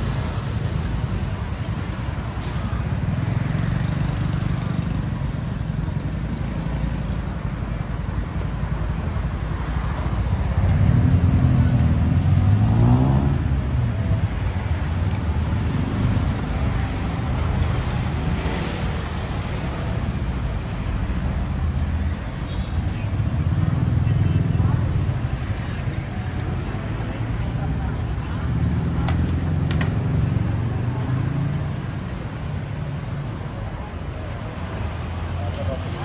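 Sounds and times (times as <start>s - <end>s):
road traffic rumbling: 0.0s - 36.0s
vehicle engine speeding past: 10.8s - 13.6s.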